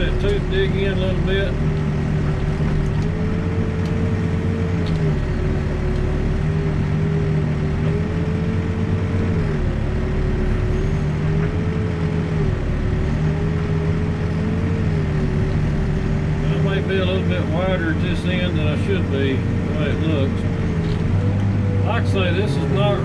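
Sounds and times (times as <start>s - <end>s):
diesel engine running: 0.0s - 23.0s
hydraulic whine: 0.0s - 23.0s.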